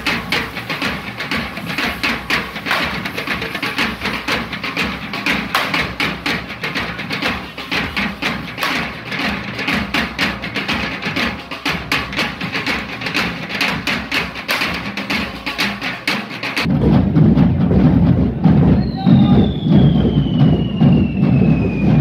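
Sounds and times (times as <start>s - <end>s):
fireworks hissing and crackling: 0.0s - 4.4s
drum group playing fast beat: 0.0s - 22.0s.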